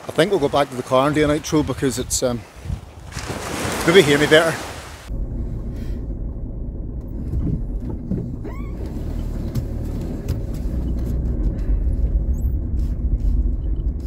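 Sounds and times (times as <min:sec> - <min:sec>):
van engine and tyres rumbling: 0:05.1 - 0:14.0.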